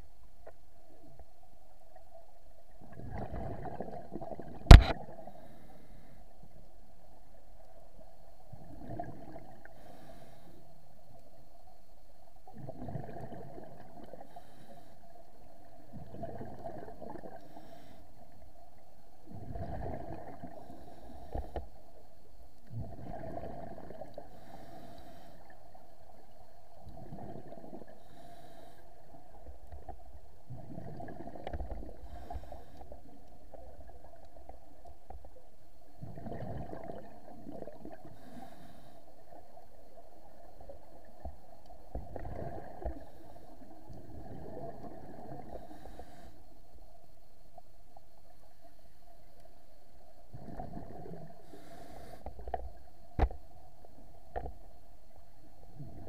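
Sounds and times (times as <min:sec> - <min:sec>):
sharp click: 0:04.7 - 0:05.0.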